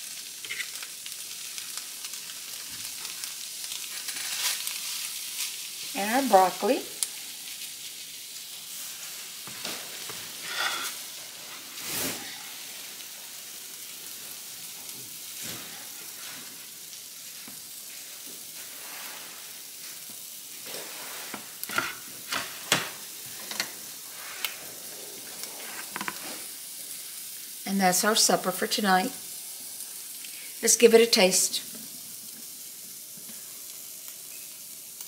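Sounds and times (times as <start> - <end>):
pans sizzling: 0.0 - 35.0
metal spoon scraping a skillet: 0.4 - 0.8, 10.4 - 11.2, 20.6 - 24.6, 25.3 - 26.5.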